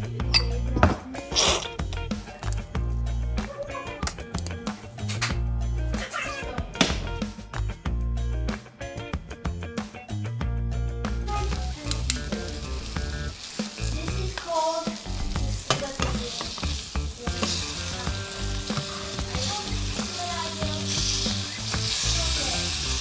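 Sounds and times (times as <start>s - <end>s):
fish fillets sizzling in oil: 11.2s - 23.0s
metal tongs scraping a pan: 11.7s - 12.5s, 13.1s - 22.1s.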